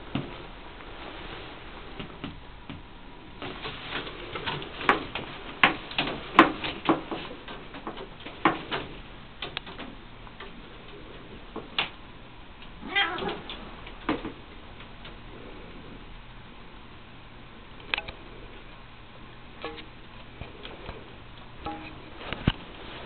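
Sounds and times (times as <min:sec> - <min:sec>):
cat clicking and tapping on blinds: 0:03.4 - 0:10.6.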